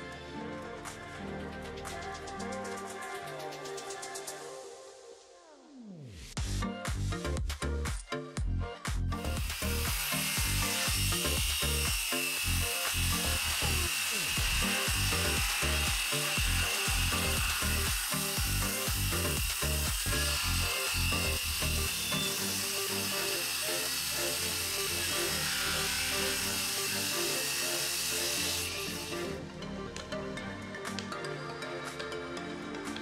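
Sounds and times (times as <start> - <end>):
electronic music with steady beat: 1.0 - 4.6, 6.4 - 13.4, 14.3 - 20.5
circular saw cutting boards: 9.2 - 29.4.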